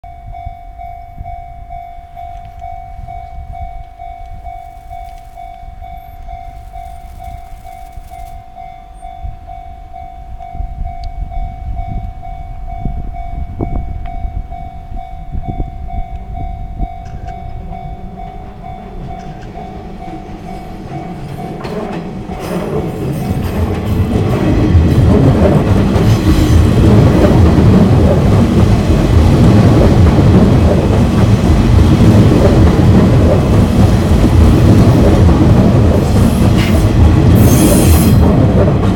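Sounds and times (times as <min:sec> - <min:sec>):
level-crossing bell ringing: 0:00.0 - 0:22.5
train rumble: 0:00.1 - 0:38.9.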